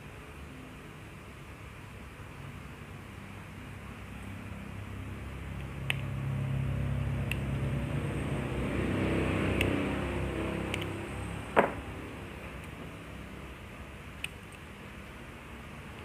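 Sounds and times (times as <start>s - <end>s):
vehicle engine passing by: 6.0s - 12.4s
light clicks: 10.6s - 11.0s.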